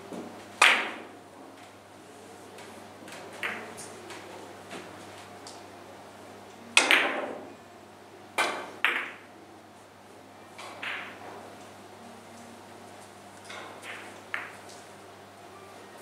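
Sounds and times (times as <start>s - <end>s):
cue striking ball: 0.2s - 1.2s, 3.3s - 4.0s, 6.8s - 7.5s, 8.4s - 9.3s, 10.6s - 11.5s, 13.5s - 14.7s.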